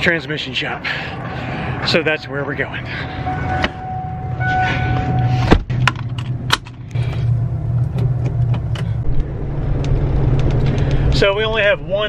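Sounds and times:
steady high tone: 1.6s - 5.4s.

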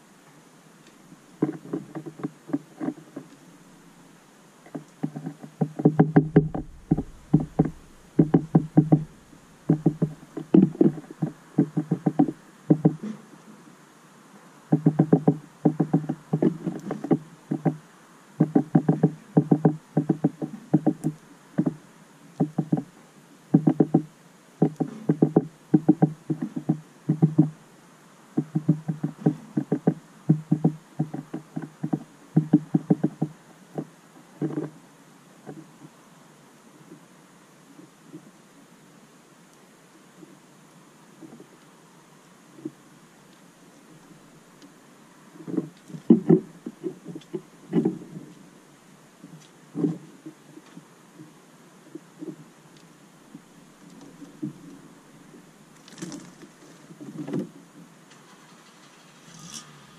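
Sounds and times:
beaks tapping on plastic feeder: 4.7s - 9.1s, 9.7s - 13.2s, 14.7s - 17.8s, 18.4s - 21.8s, 22.4s - 22.8s, 23.5s - 27.5s, 28.4s - 34.7s.

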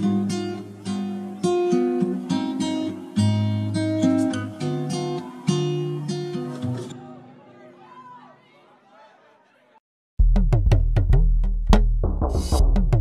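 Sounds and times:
acoustic guitar strumming chords: 0.0s - 7.1s.

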